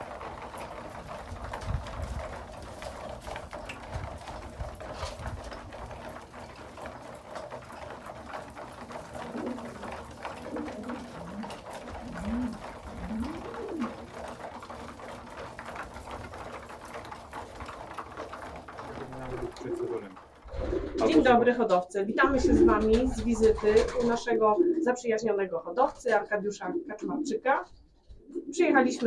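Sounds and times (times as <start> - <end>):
pigeons pecking grain: 0.0 - 21.3, 22.4 - 24.9
pigeon cooing: 9.0 - 14.0, 18.9 - 21.4, 22.2 - 24.9.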